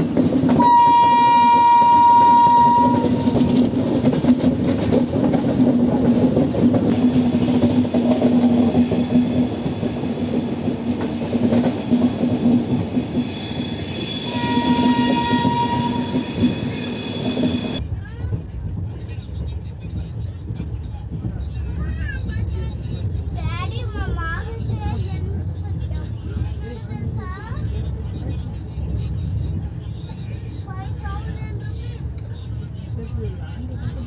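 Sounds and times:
train rumble and rail clatter: 0.0 - 34.0
train horn blowing: 0.6 - 3.6, 14.0 - 16.6.

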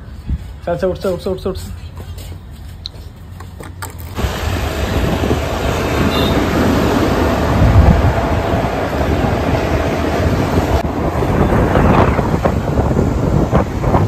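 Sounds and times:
road and traffic noise: 0.0 - 14.0
wind buffeting microphone: 4.2 - 14.0.

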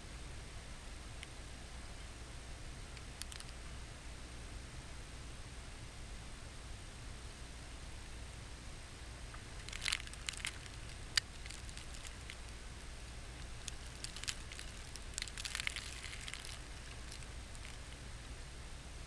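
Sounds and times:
steady low rumble: 0.0 - 19.0
snow ticking against camera: 9.5 - 12.6, 13.4 - 18.0.

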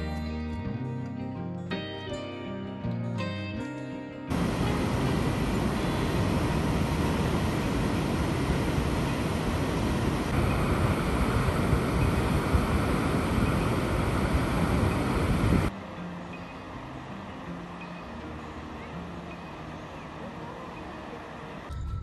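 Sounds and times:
wind buffeting microphone: 4.3 - 15.7
water rushing from dam outlet: 4.3 - 21.7.

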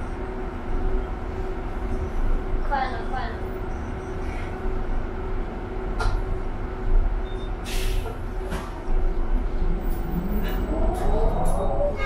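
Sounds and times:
bus engine rumbling: 0.0 - 12.0
short air hisses: 7.6 - 8.2
rising whine: 9.2 - 12.0.

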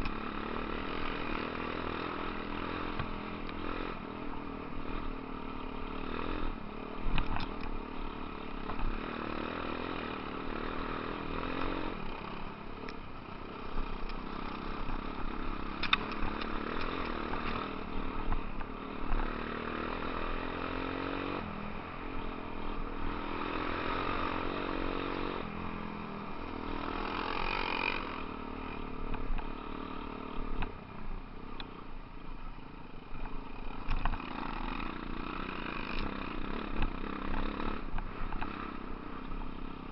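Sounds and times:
off-road motorcycle engine: 0.0 - 39.9.

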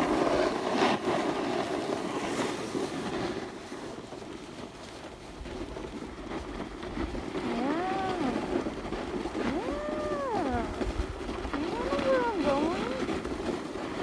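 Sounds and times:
snowboard sliding on snow: 0.0 - 14.0
wind on microphone: 5.1 - 14.0
person singing wavering ooo tones: 9.5 - 10.7.

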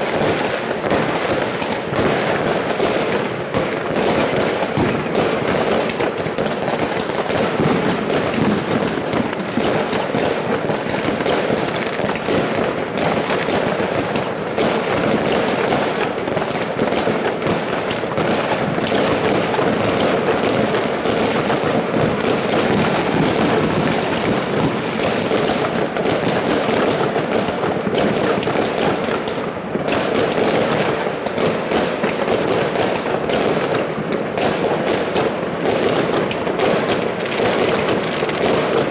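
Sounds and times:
fireworks crackling and banging: 0.0 - 38.9.

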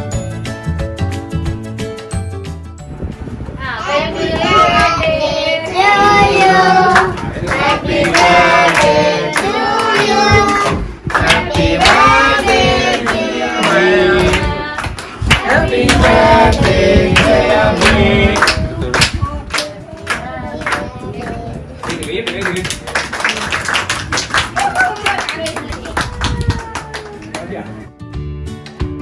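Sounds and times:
group singing a celebration song: 3.6 - 21.6
people clapping in time: 7.0 - 27.9, 28.5 - 29.0.

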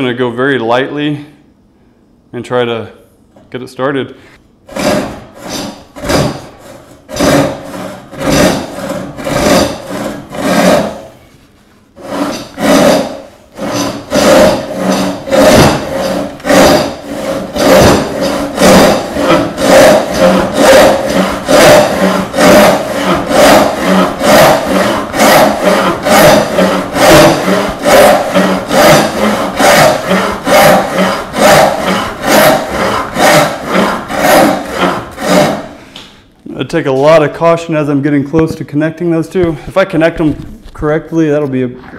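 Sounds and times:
hand saw strokes through wood: 4.7 - 11.1, 12.0 - 35.8.

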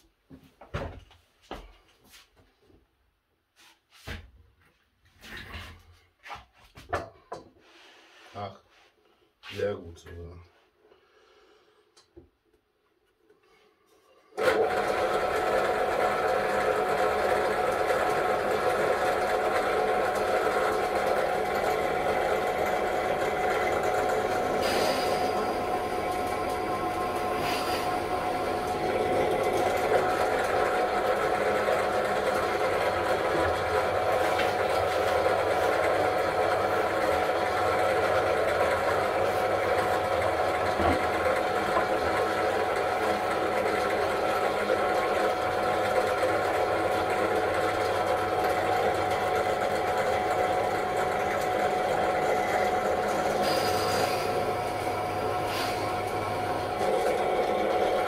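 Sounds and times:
drill press motor whine: 14.4 - 58.0.

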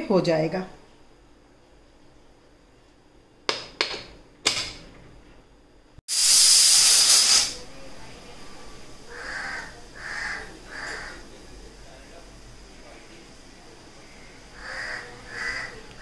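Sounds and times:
pressure cooker whistle blast: 6.1 - 7.6
pressure cooker steam hissing: 6.1 - 7.7.

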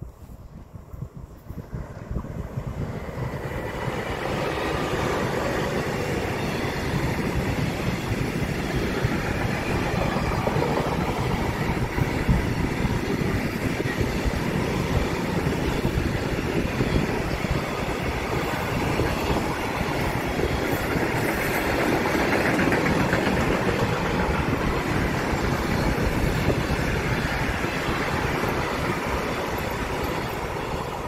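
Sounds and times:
freight train passing: 0.0 - 31.0.

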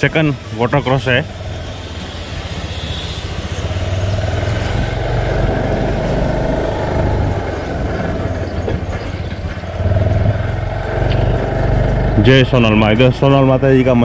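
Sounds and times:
motor scooter engine running: 2.4 - 13.0.

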